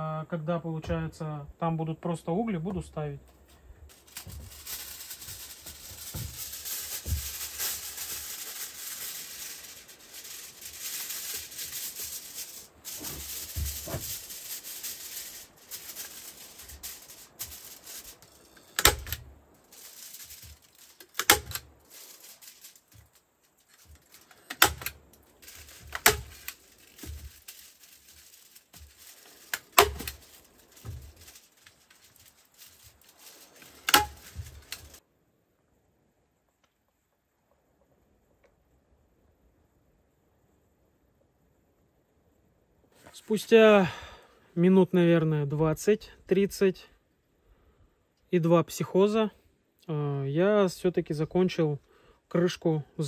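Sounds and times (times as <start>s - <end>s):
aluminium foil crinkling: 3.4s - 35.0s.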